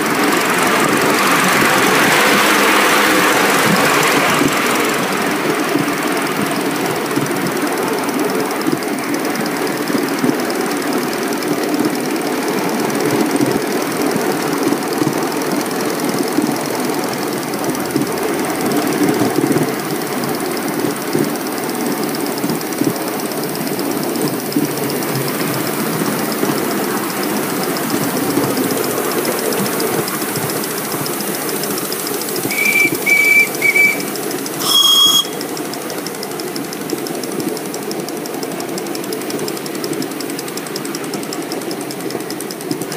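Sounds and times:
miniature steam locomotive running: 0.0s - 42.9s
steam whistle toots: 32.4s - 35.6s
second whistle blast: 32.5s - 35.5s.

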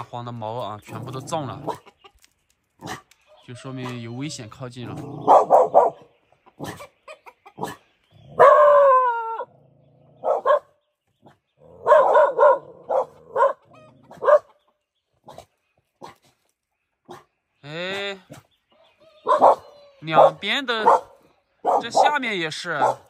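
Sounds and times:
dogs barking: 0.9s - 1.9s, 2.8s - 3.2s, 4.8s - 16.4s, 17.0s - 17.4s, 19.2s - 23.0s.

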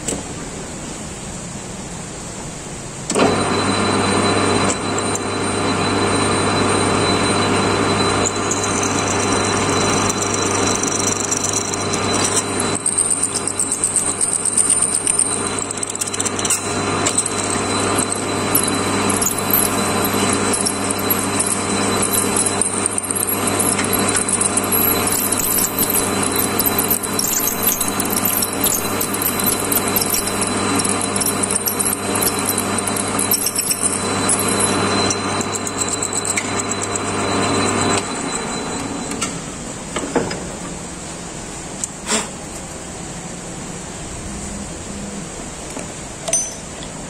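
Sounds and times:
lathe humming: 3.2s - 39.8s
drill squealing in steel: 3.3s - 39.5s.

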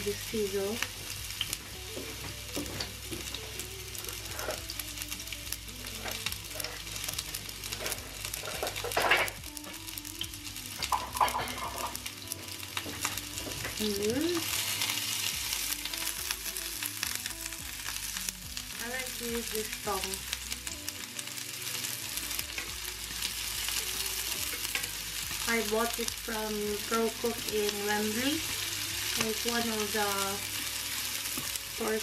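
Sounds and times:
onions sizzling in oil: 0.0s - 32.0s
tongs stirring onions: 0.1s - 9.2s, 18.9s - 32.0s.

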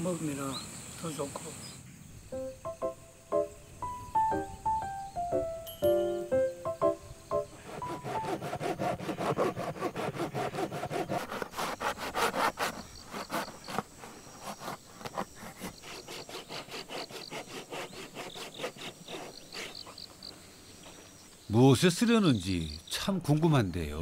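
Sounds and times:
handsaw cutting gourd shell: 7.6s - 20.0s.

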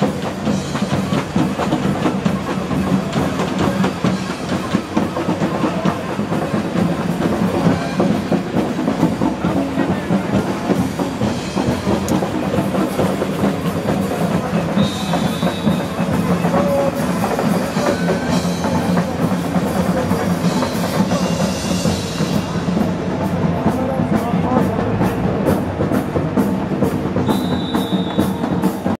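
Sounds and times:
music with drumming: 0.0s - 29.0s.

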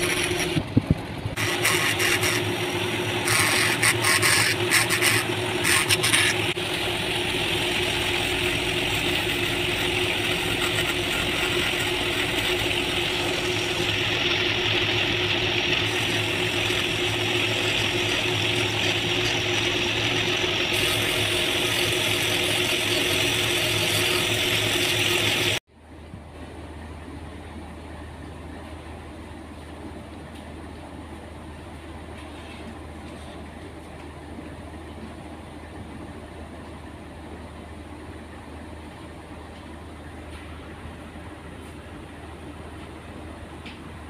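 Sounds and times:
bit grinding into wood: 0.0s - 0.6s, 1.4s - 6.6s
rotary tool whining: 0.0s - 25.6s.

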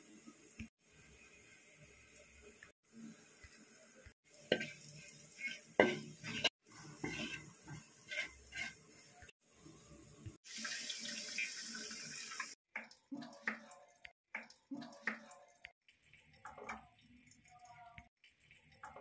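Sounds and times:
spoon scraping and clinking on pan: 4.5s - 8.8s.

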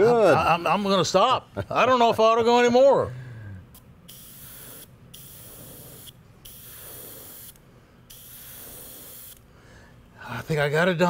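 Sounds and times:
airbrush spraying paint: 4.1s - 9.5s.

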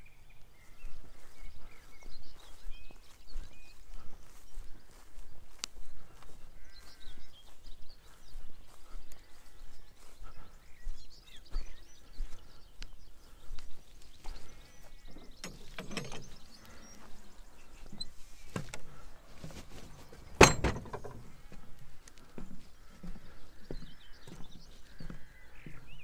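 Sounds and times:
footsteps outdoors: 0.0s - 26.0s.

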